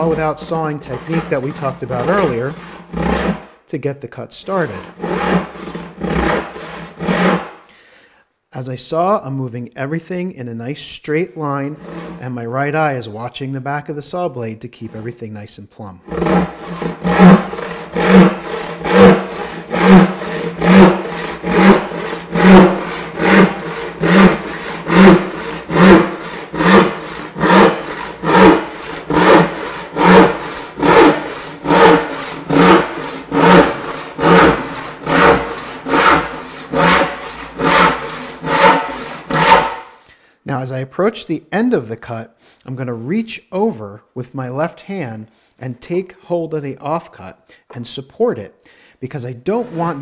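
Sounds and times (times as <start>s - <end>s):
hand saw rasping through wood: 0.0s - 3.5s, 4.4s - 7.6s, 11.7s - 12.3s, 14.8s - 15.2s, 16.1s - 40.0s, 49.4s - 50.0s.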